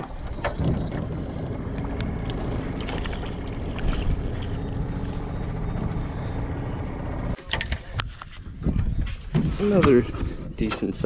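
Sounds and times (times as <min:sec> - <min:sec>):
small boat motor humming: 0:00.0 - 0:08.0.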